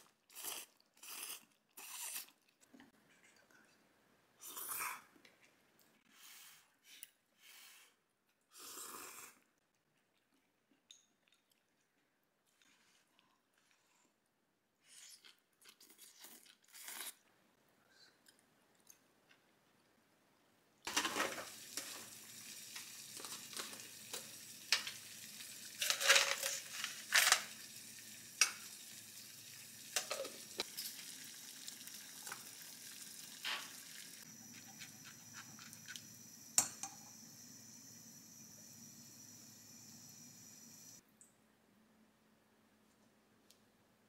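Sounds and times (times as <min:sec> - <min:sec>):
gas hob hissing: 0:20.9 - 0:31.0, 0:33.2 - 0:41.0
pots and utensils clinking: 0:25.7 - 0:27.6, 0:29.9 - 0:31.1.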